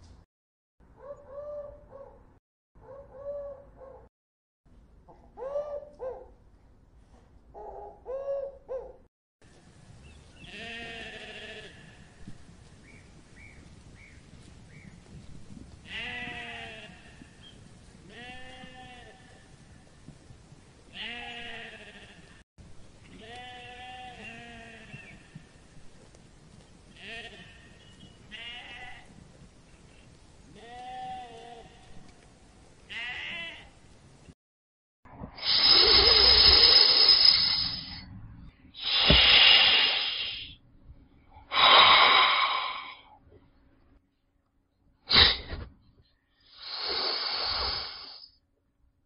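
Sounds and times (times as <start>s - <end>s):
sheep bleating: 15.9s - 17.3s, 21.0s - 22.3s, 23.1s - 25.2s
snake hissing: 35.4s - 38.0s, 38.8s - 40.6s, 41.5s - 43.1s, 45.1s - 45.4s, 46.5s - 48.3s.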